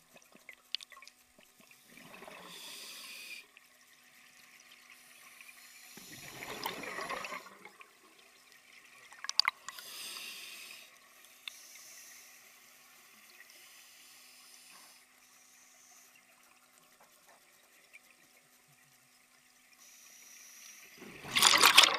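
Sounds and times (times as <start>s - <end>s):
regulator hiss: 2.4s - 3.5s, 9.8s - 16.1s, 19.8s - 21.0s
bubbling exhaust underwater: 6.0s - 7.8s.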